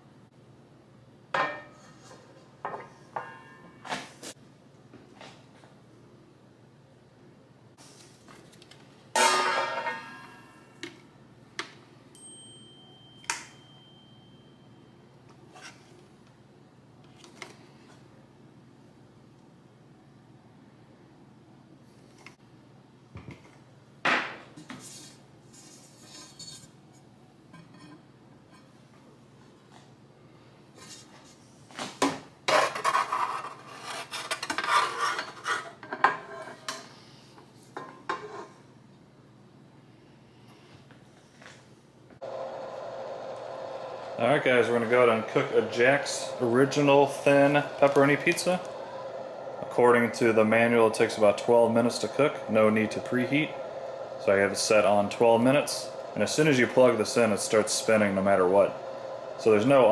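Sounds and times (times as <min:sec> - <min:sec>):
baking tray scraping and clattering: 0:24.6 - 0:26.8, 0:32.5 - 0:36.9, 0:37.9 - 0:38.6.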